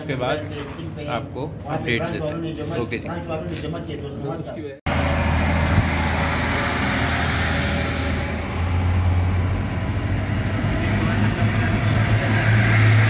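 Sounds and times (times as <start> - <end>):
car engine drone: 4.9 - 13.0
road and wind noise: 4.9 - 13.0.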